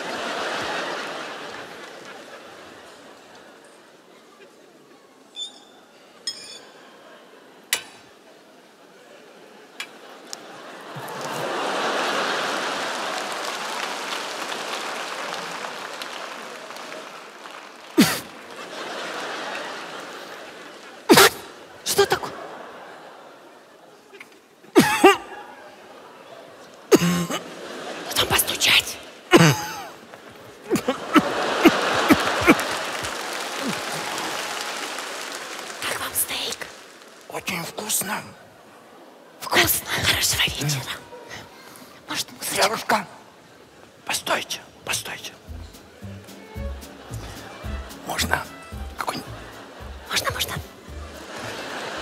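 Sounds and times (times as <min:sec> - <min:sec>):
audience applauding: 0:00.0 - 0:03.6, 0:10.2 - 0:22.6, 0:30.3 - 0:37.8, 0:45.0 - 0:52.0.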